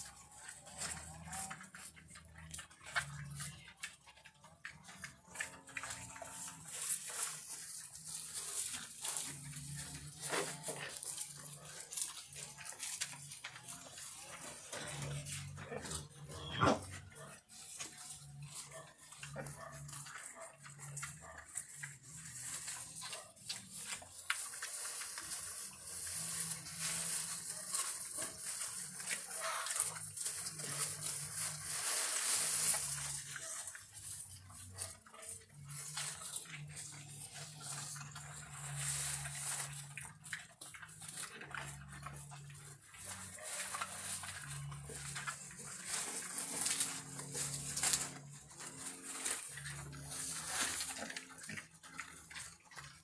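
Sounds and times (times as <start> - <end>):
pigs chewing: 0.0 - 53.0
pigs snuffling: 0.0 - 53.0
leaves rustling: 6.2 - 19.2, 19.8 - 53.0.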